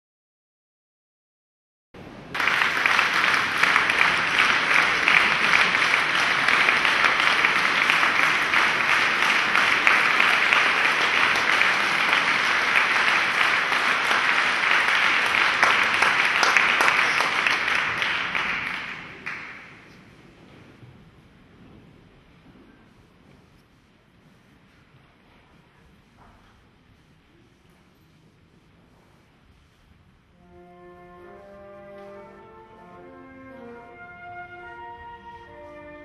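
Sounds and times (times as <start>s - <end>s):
audience applauding: 2.3s - 20.0s.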